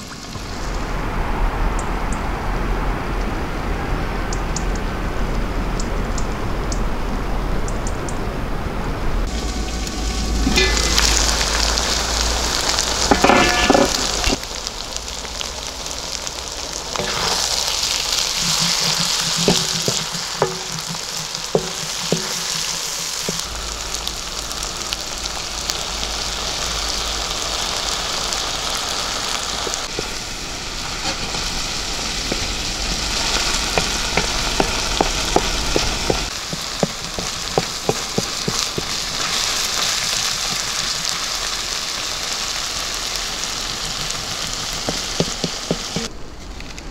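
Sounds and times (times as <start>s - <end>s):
food sizzling in a pan: 9.3s - 46.1s
sharp pops and clicks: 43.7s - 46.1s.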